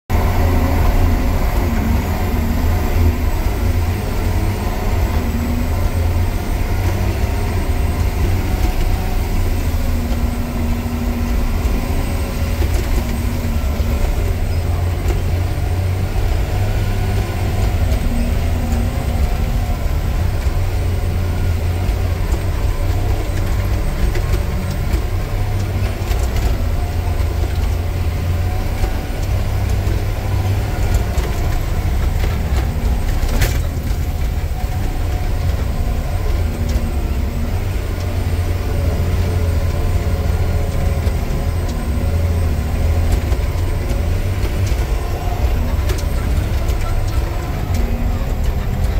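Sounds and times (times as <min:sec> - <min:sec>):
diesel engine droning: 0:00.0 - 0:48.9.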